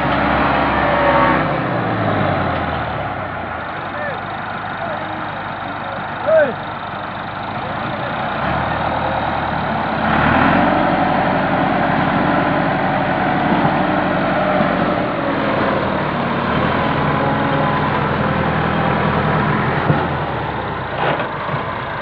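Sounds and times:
tractor diesel engine straining: 0.0 - 22.0.

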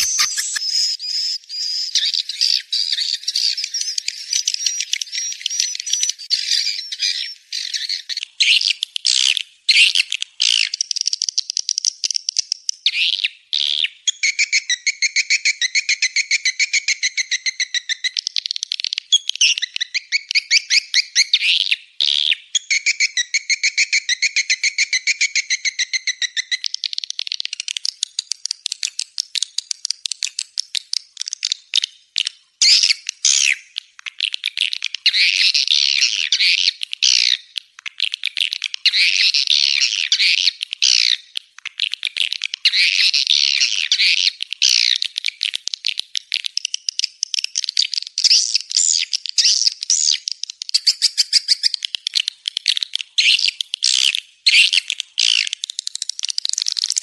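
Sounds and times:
swiftlet chirping clicks: 0.0 - 1.3
chattering bird trills: 0.0 - 8.7.

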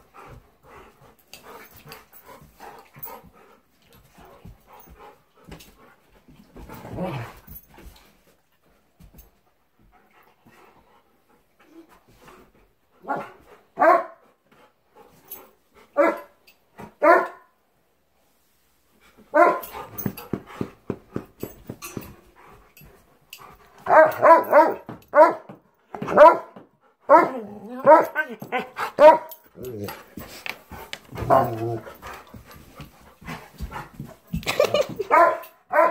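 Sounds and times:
dog barking: 13.0 - 14.2, 16.0 - 16.3, 17.0 - 17.5, 19.3 - 19.6, 23.9 - 25.5, 26.1 - 28.2, 29.0 - 29.4, 35.1 - 35.9.

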